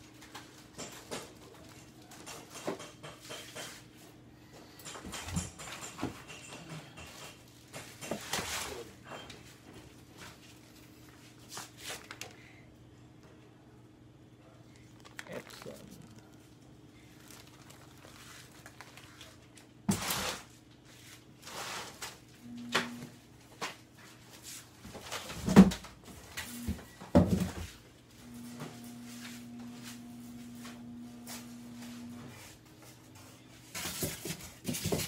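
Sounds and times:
low steady hum: 12.0s - 24.4s, 25.3s - 33.7s.

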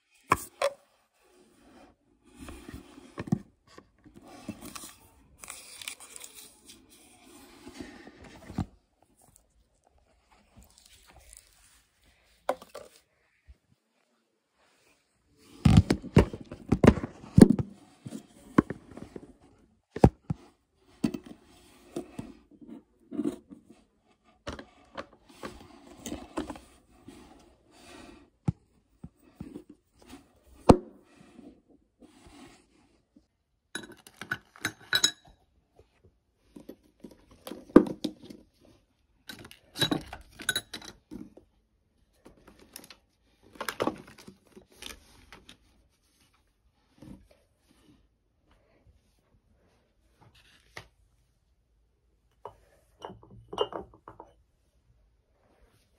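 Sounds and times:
glass bottles clinking: 53.0s - 54.3s.

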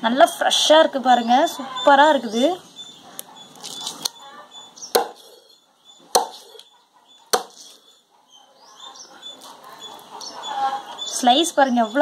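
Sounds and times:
knife chopping fish: 4.9s - 5.3s, 6.1s - 6.6s.

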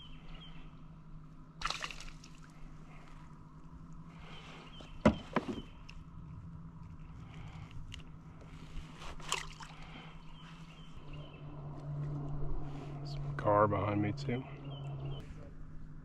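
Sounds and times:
low steady hum: 0.0s - 16.0s
knocks and clicks of fish handling: 5.0s - 5.9s.

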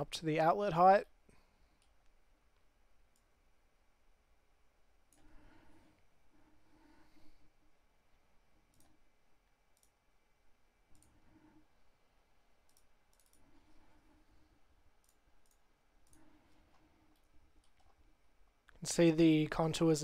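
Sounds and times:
faint computer mouse clicks: 8.7s - 9.0s, 9.7s - 10.0s, 10.9s - 11.2s, 12.6s - 13.5s, 15.0s - 18.0s.

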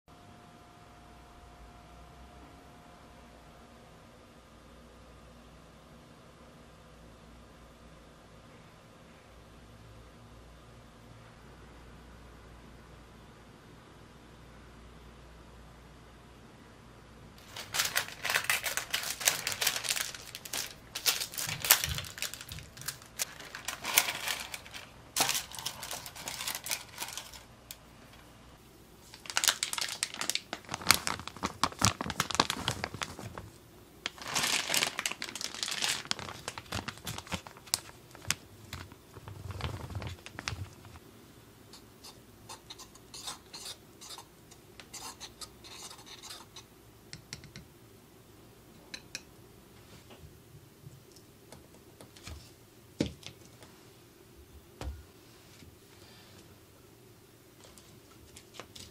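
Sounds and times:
paper flour bags crinkling: 17.4s - 27.8s, 29.0s - 41.0s, 57.6s - 58.9s
whisk scratching in wooden bowl: 42.0s - 44.3s, 44.9s - 46.7s.

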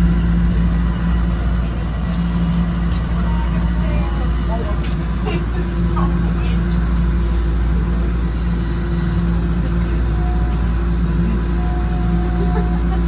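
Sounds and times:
subway train rumble: 0.0s - 13.0s
whining hum: 0.0s - 13.0s
thin high squeal: 3.4s - 4.1s.

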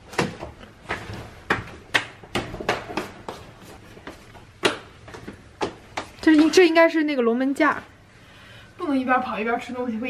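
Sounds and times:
footsteps in slippers on stairs: 0.0s - 6.7s.

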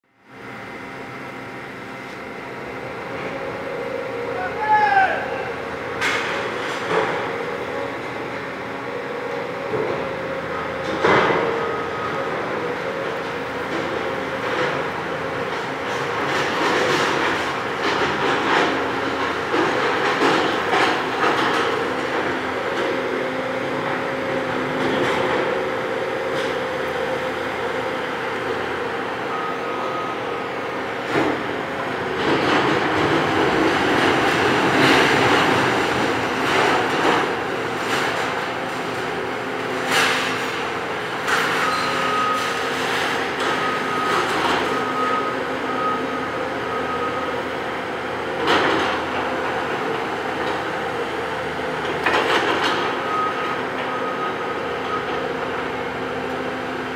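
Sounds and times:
heavy demolition machinery running: 0.3s - 56.9s
reversing alarm beeping: 28.6s - 30.8s, 41.4s - 47.6s, 52.7s - 55.7s.

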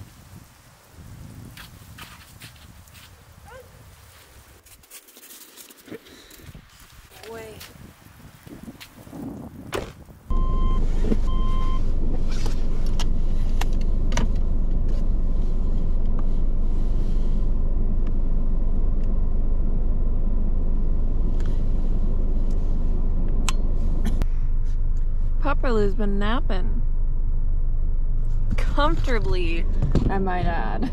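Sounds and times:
car engine idling: 10.3s - 30.9s.

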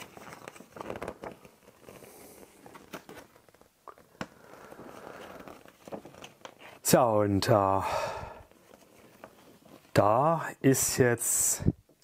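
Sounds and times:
paper rustling: 0.0s - 6.8s, 8.5s - 10.1s.

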